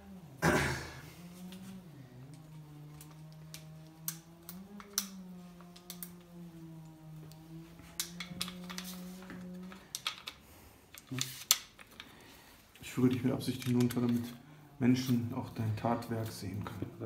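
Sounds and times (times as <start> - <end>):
droning hum: 0.0 - 11.2
plastic and metal parts clicking: 2.3 - 6.4, 7.2 - 14.4.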